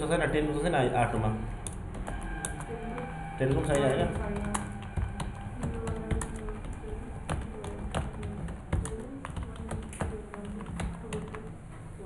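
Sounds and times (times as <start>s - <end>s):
low wavering tone: 1.3s - 7.3s.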